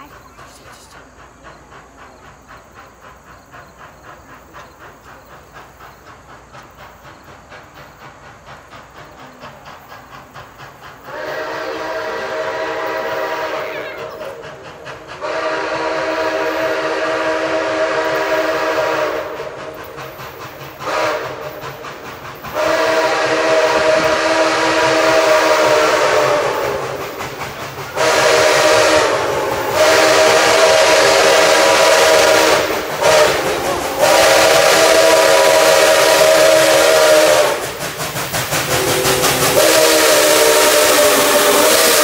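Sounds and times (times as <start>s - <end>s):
steam locomotive exhaust beating: 0.0s - 42.0s
locomotive chime whistle blasts: 11.1s - 14.4s, 15.2s - 19.4s, 22.6s - 26.8s, 28.0s - 37.6s, 38.7s - 42.0s.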